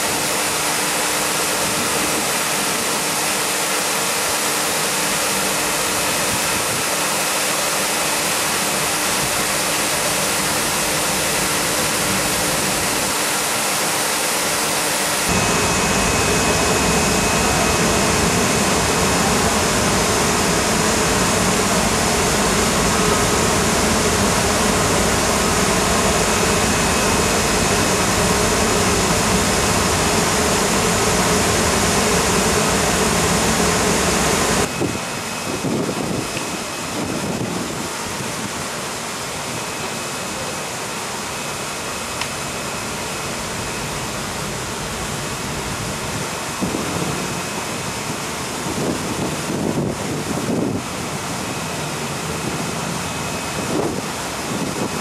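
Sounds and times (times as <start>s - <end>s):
rushing water-like hiss: 0.0s - 15.9s
washing machine running: 0.0s - 55.0s.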